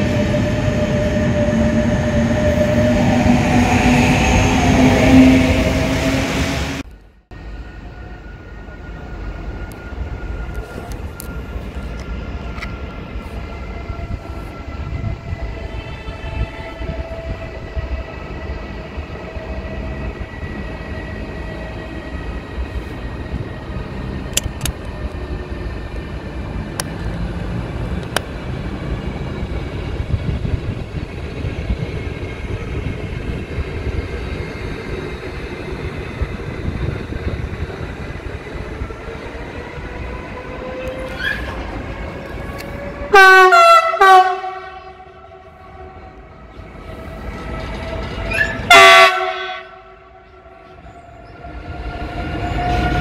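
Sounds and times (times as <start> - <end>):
train whine dropping in pitch: 0.0 - 27.2, 28.6 - 53.0
train rumbling: 0.0 - 53.0.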